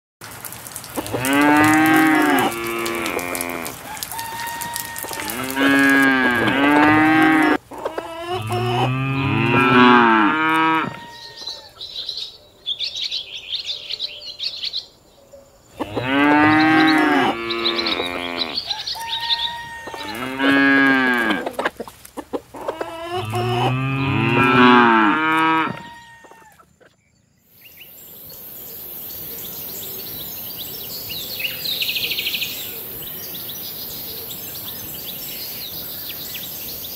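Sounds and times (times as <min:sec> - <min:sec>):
cattle mooing: 0:01.0 - 0:07.6, 0:08.2 - 0:11.4, 0:15.8 - 0:18.6, 0:19.2 - 0:21.5, 0:22.8 - 0:26.2.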